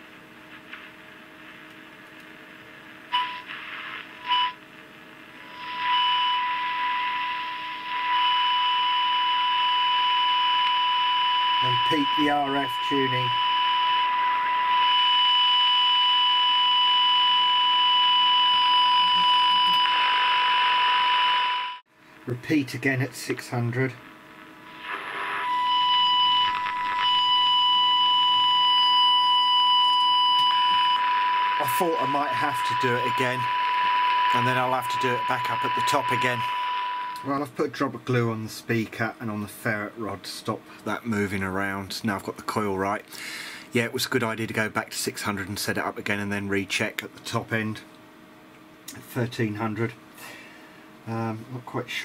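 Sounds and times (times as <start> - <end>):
radio speaker hissing: 0.0 - 1.9, 3.1 - 4.6, 5.3 - 9.6, 11.4 - 15.0, 22.2 - 28.6, 30.4 - 37.4
steady high test tone: 5.4 - 21.8, 24.7 - 37.4
high-pitched test tone: 24.8 - 37.3.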